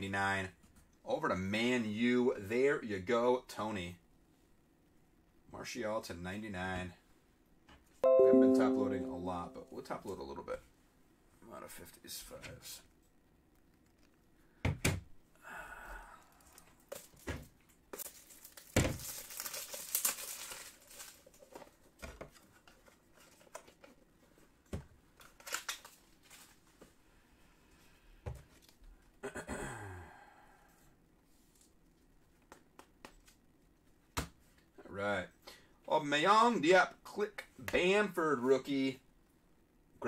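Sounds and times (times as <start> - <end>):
foil wrapper tearing and crinkling: 18.0 - 21.5, 25.2 - 26.5.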